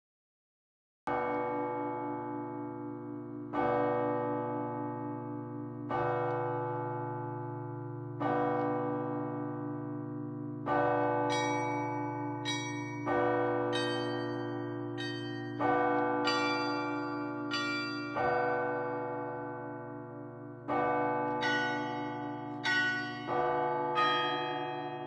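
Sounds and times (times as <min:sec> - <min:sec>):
large church bell ringing: 0:01.1 - 0:25.0
smaller higher bells ringing: 0:10.7 - 0:25.0.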